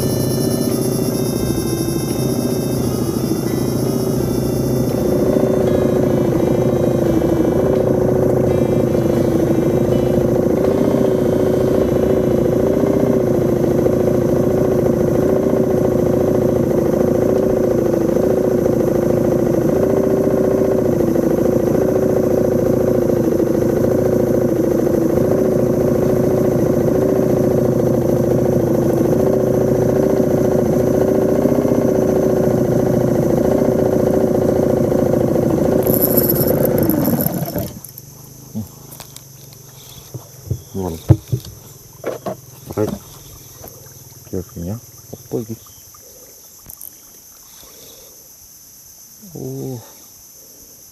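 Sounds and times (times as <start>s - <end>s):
outboard motor running: 0.0s - 48.2s.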